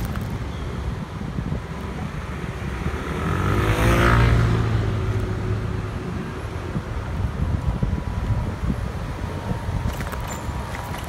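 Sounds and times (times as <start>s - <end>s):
wind rumble on microphone: 0.0s - 11.0s
motor vehicle passing: 2.7s - 6.3s.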